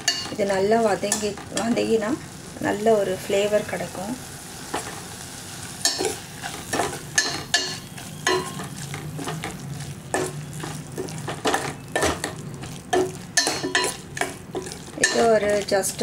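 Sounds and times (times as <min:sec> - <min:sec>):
food frying: 0:00.0 - 0:16.0
ladle scraping and knocking pot: 0:05.9 - 0:16.0.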